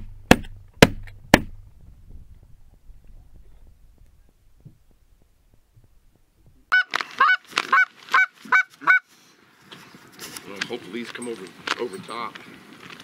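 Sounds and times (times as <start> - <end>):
goose call honks: 6.7 - 9.1.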